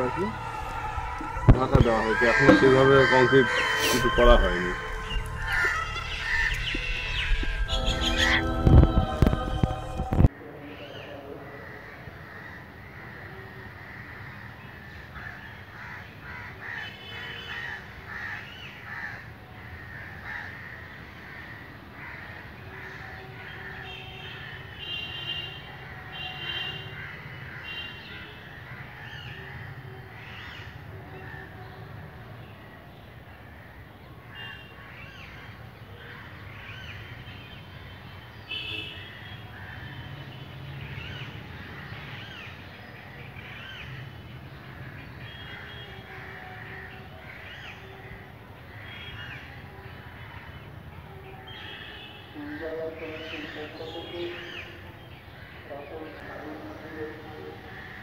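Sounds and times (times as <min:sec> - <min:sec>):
crows cawing: 0:00.0 - 0:08.9, 0:11.6 - 0:24.7, 0:26.9 - 0:31.5, 0:39.5 - 0:40.2, 0:44.8 - 0:48.1, 0:57.1 - 0:58.0.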